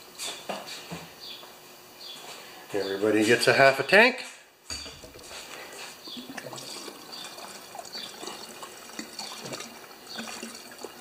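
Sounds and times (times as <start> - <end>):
fuel pouring with gurgles: 5.9 - 11.0.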